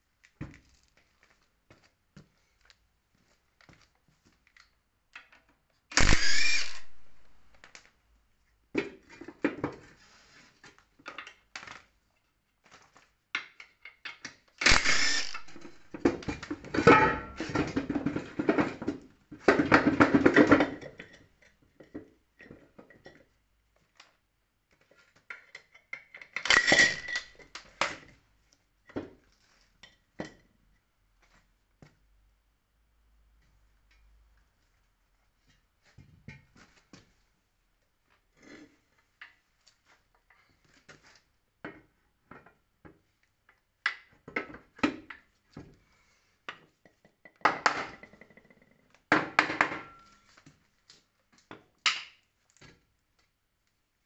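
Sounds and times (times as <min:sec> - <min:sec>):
metal parts clanking: 0:06.0 - 0:07.3, 0:26.4 - 0:27.4.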